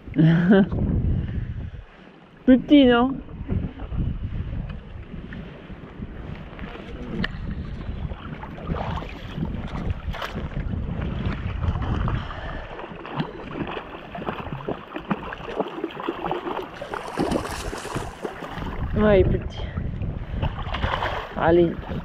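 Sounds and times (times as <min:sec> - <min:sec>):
wind rumbling on microphone: 0:00.0 - 0:22.0
water sloshing and splashing: 0:03.2 - 0:22.0
fish thrashing at the surface: 0:11.4 - 0:19.0, 0:20.4 - 0:22.0.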